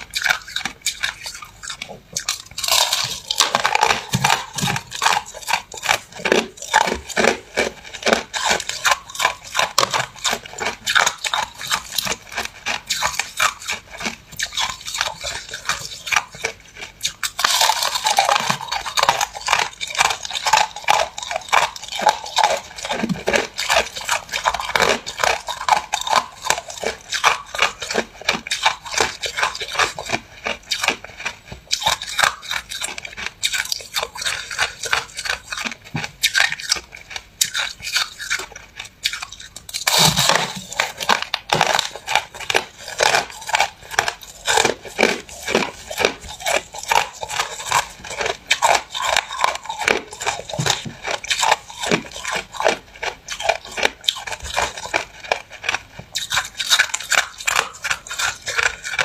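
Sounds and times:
person crunching ice: 0.1 - 59.0.

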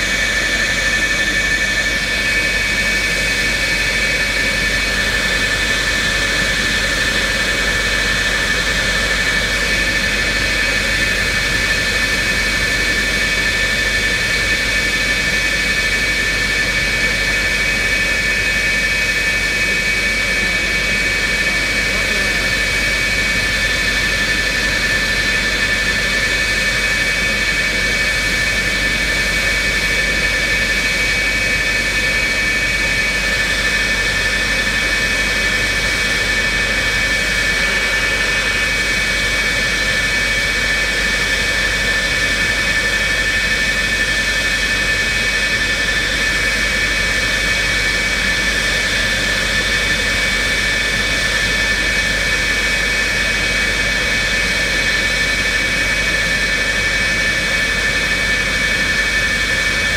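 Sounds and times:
jet engines idling: 0.0 - 59.9.

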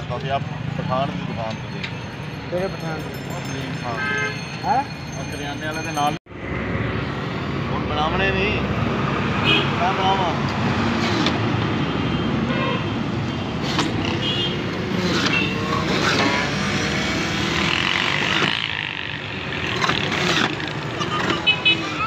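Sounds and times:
street traffic passing: 0.0 - 22.0.

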